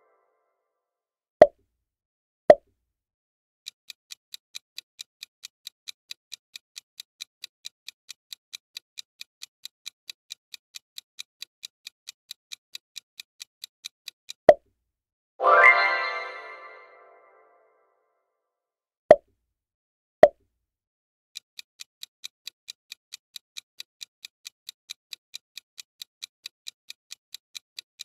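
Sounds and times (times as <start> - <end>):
clock ticks: 3.6 - 14.6, 21.3 - 28.0.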